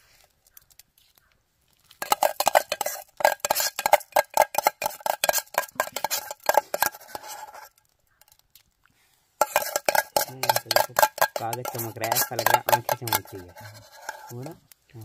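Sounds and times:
metal spoon scraping metal pot: 2.0s - 8.4s, 9.4s - 14.7s.

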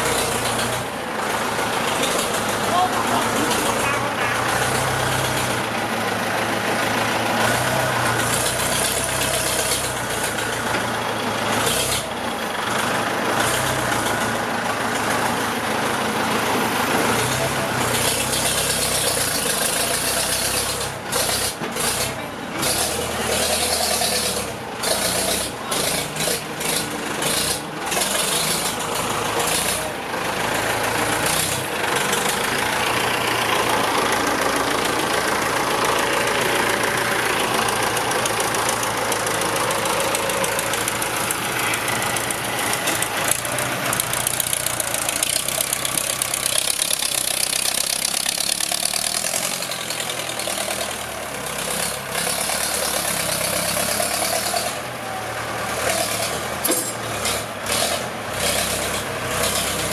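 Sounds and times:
tractor diesel engine clattering: 0.0s - 59.9s
grading blade dragging through soil: 57.1s - 59.9s.

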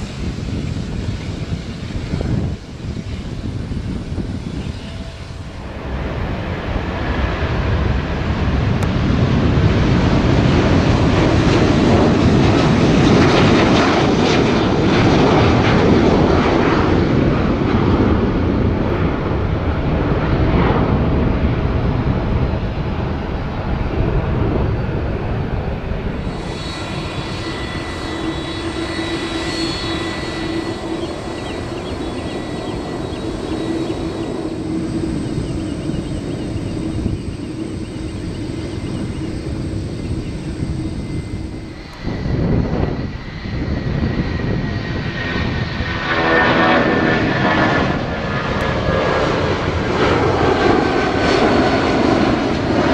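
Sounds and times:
jet engine whine: 0.0s - 52.9s
jet engines roaring at takeoff: 0.0s - 52.9s
high steady tones: 26.2s - 41.9s.

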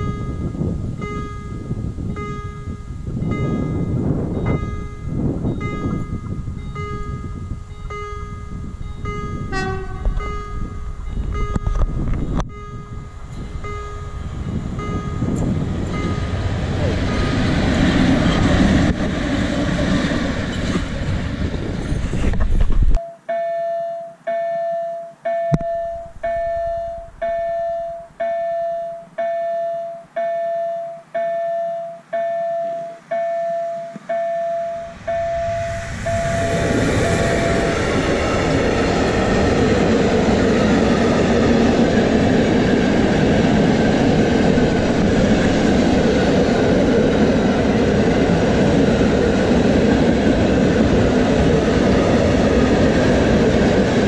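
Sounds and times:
level-crossing warning bell ringing: 0.0s - 17.6s, 23.0s - 38.0s
train passing: 0.0s - 22.9s, 25.2s - 54.0s
freight train rumbling past: 0.0s - 23.0s, 25.7s - 28.8s, 34.0s - 54.0s.

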